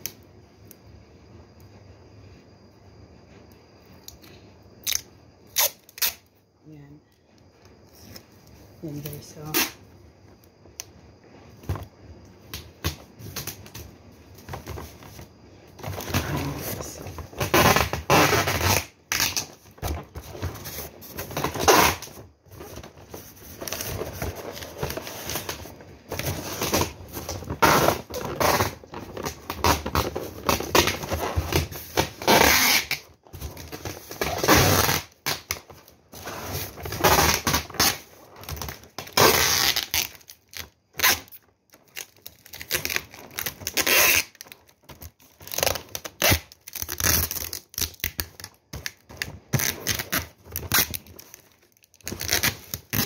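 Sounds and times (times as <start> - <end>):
packing tape pulled off roll: 4.8 - 6.3, 12.5 - 53.0
plastic bottles crinkling: 15.8 - 53.0.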